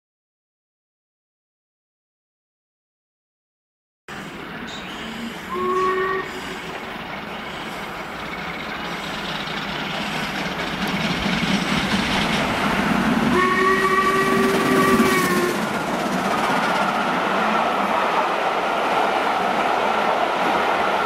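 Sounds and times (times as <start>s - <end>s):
train rumbling: 4.1s - 21.0s
steam locomotive whistle: 5.1s - 6.8s, 12.8s - 15.8s.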